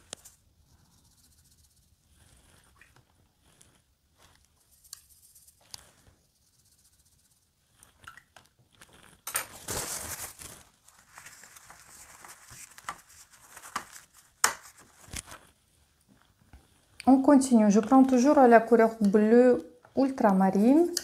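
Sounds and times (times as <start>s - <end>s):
brush scrubbing on paper: 0.0s - 2.8s, 3.4s - 8.0s, 8.9s - 19.0s, 20.2s - 21.0s
watercolour brush clicks and taps: 4.6s - 5.9s.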